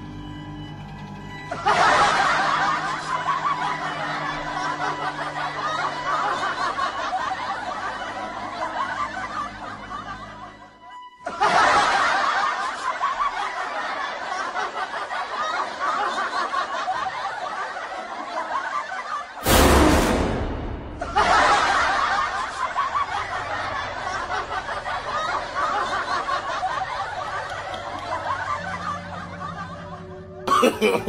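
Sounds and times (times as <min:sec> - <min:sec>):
crowd laughing: 0:00.7 - 0:31.0
loud burst of noise: 0:19.4 - 0:23.6.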